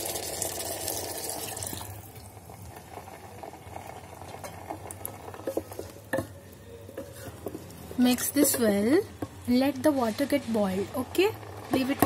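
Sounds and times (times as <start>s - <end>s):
water hissing in hot pot: 0.0s - 4.2s
wooden spatula knocking pot: 5.4s - 6.4s, 7.0s - 9.5s.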